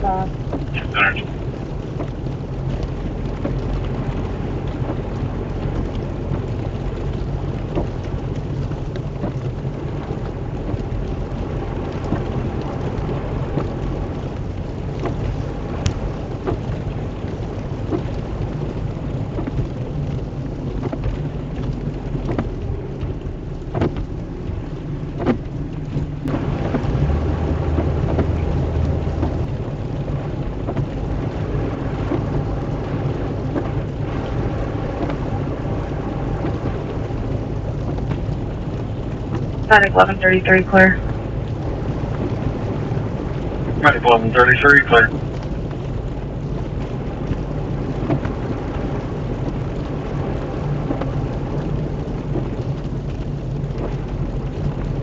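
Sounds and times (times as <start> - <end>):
steady rain: 0.0 - 55.0
low steady hum: 39.6 - 42.6, 43.7 - 45.2.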